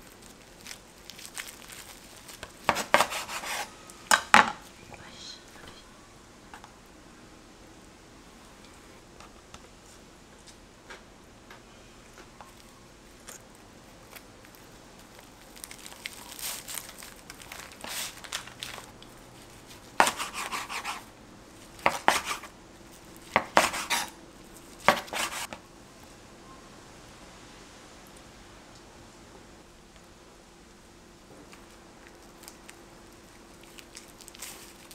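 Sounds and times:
knife cutting crackly seaweed roll: 0.1 - 4.2, 14.1 - 21.1, 21.7 - 22.5, 23.2 - 25.6.

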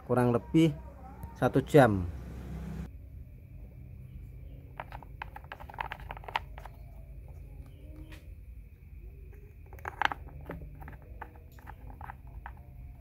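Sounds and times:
plastic caps clicking: 4.8 - 6.9, 9.3 - 13.0.

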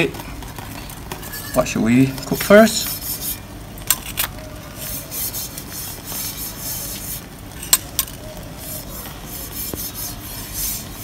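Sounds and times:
bristle brush swishing on hot plate: 1.2 - 3.6, 4.6 - 11.0.

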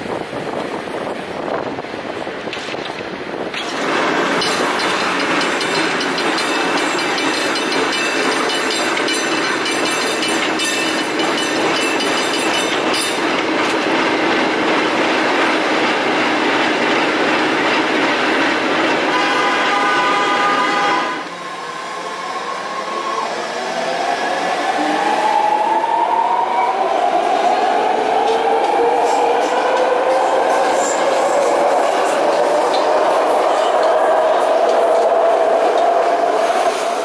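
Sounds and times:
cable car clattering rattle: 2.5 - 14.8.

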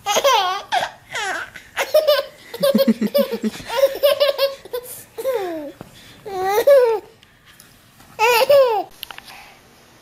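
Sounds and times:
infant laughing: 0.0 - 7.1, 8.2 - 8.9.

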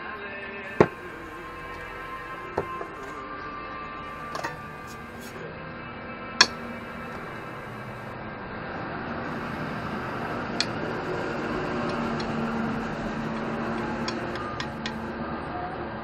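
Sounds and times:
steady low hum: 0.7 - 3.4, 4.0 - 5.5, 6.4 - 8.2, 9.3 - 15.2.

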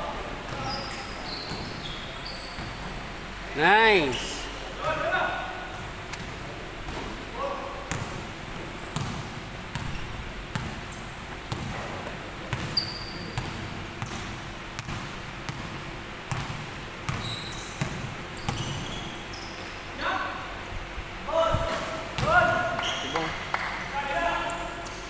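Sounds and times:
sneakers squeaking on floor: 0.3 - 3.0, 12.5 - 14.2, 17.1 - 19.9, 22.2 - 23.4
basketball bouncing on wooden floor: 13.4 - 18.9.

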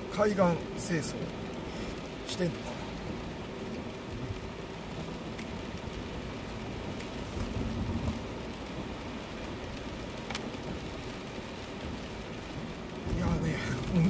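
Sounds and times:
rain on car: 0.0 - 14.0
tyre hiss on wet road: 0.0 - 14.0
faint ticks: 5.2 - 5.6, 9.8 - 10.6.

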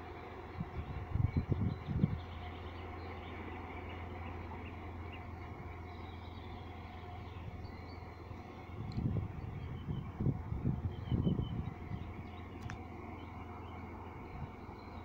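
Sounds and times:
wind buffeting microphone: 0.0 - 3.0, 7.1 - 15.0
distant diesel locomotive engine: 0.0 - 15.0.

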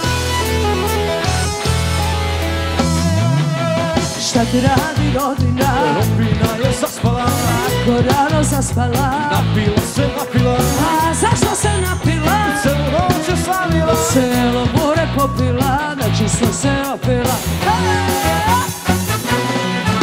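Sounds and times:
loud dance music: 5.6 - 6.6.

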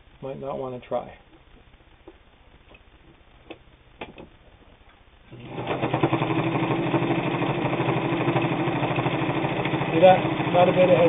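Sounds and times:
sewing machine running: 5.3 - 11.0.

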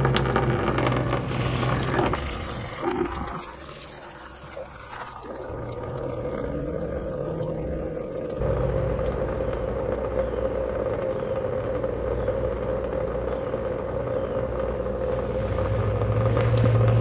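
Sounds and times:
gasoline splashing into plastic tub: 0.0 - 12.3
low rumble: 5.5 - 17.0.

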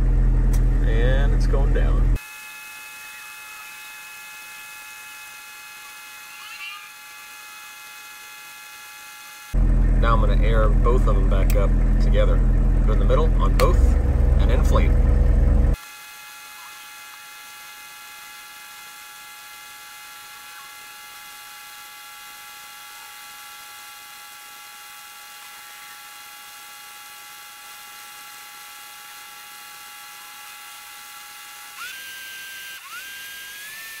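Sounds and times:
air pump whine: 0.0 - 34.0.

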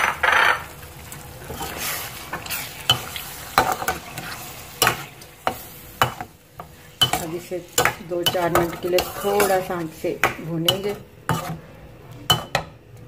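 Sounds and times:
food sizzling: 0.0 - 12.5
spatula scraping a metal pan: 1.5 - 6.2, 7.0 - 10.1, 10.7 - 11.7.

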